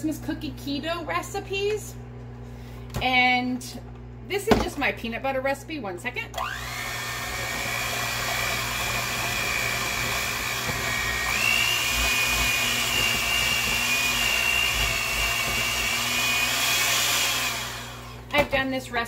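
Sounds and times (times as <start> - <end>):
electric hand mixer whining: 6.4 - 18.4.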